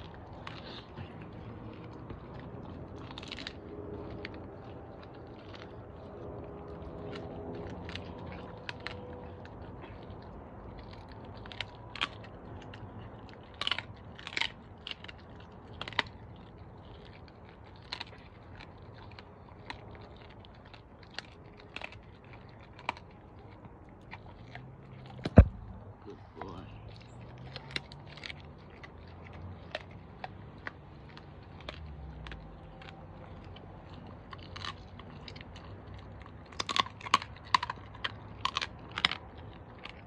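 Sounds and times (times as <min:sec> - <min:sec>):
dog chewing with crunches: 0:00.0 - 0:40.0.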